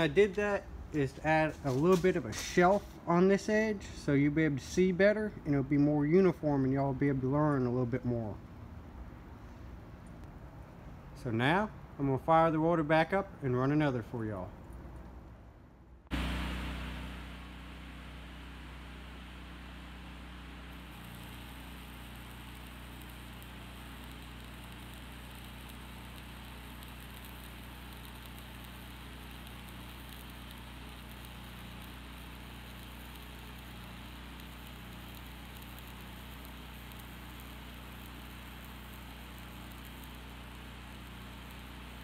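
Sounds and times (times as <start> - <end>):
welder engine humming: 0.0 - 4.9, 16.1 - 42.0
welding arc crackling sizzle: 0.0 - 8.4, 16.1 - 42.0.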